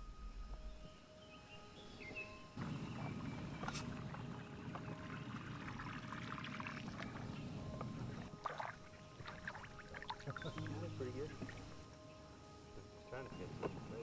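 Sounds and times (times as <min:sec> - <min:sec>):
water lapping against boat: 0:02.6 - 0:11.8
fish splashing and thrashing: 0:08.1 - 0:10.7.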